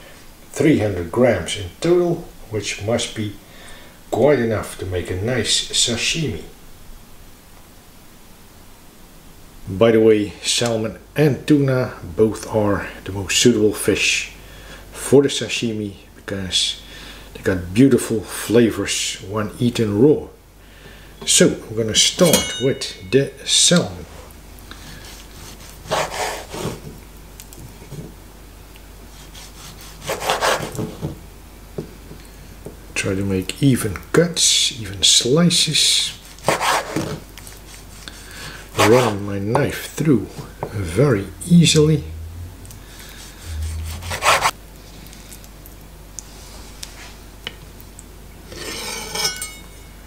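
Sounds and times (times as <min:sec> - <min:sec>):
knife scraping wooden board: 0:25.0 - 0:26.9, 0:29.2 - 0:31.0, 0:36.4 - 0:38.2, 0:43.1 - 0:44.6.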